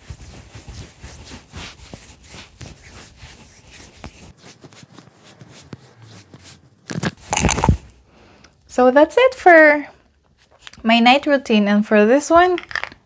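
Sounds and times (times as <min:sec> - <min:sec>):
fingers rubbing skin: 0:00.0 - 0:07.8.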